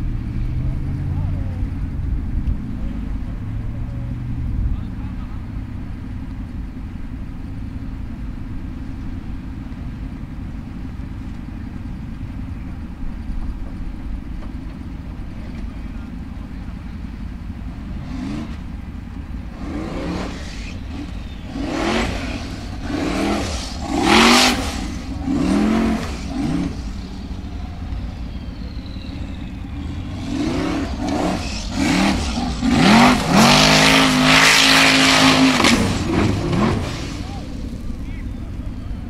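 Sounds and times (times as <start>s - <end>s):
buggy engine revving: 0.0s - 39.0s
tyres throwing dirt: 17.7s - 38.6s.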